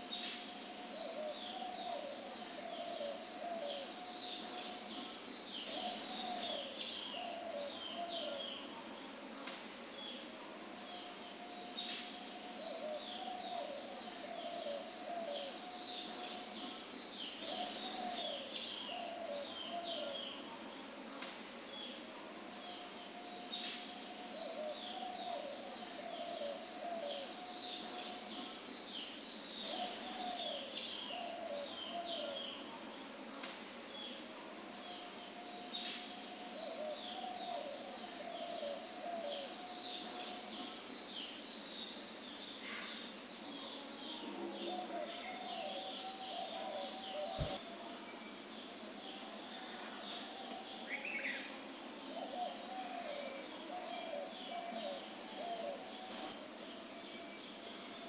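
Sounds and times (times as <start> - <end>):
steady high hiss: 0.0 - 58.0
lower bird call: 44.1 - 47.7.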